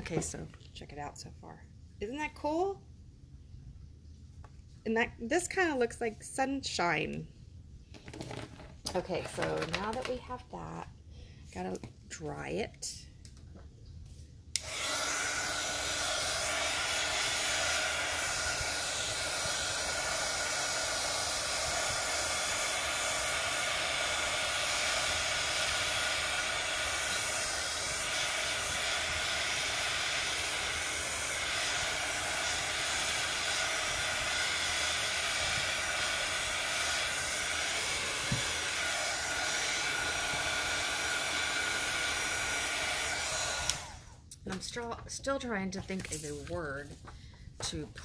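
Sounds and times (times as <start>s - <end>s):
heat gun blowing: 14.6s - 44.5s.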